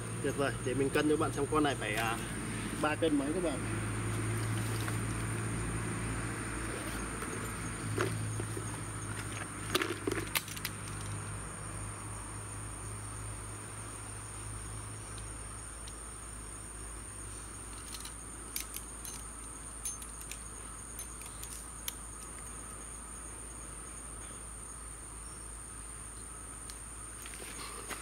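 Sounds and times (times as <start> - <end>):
sharp clicks of handled gear: 6.6 - 11.2, 17.7 - 22.8.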